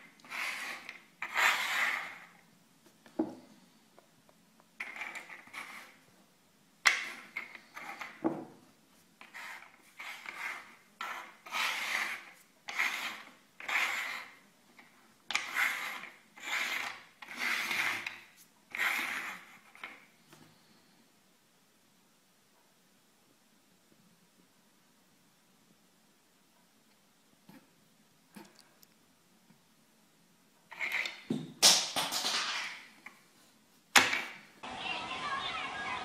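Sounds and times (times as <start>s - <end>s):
cups scraping on wooden table: 0.0s - 2.4s, 4.8s - 6.0s, 6.9s - 8.5s, 9.2s - 20.0s, 30.7s - 31.3s.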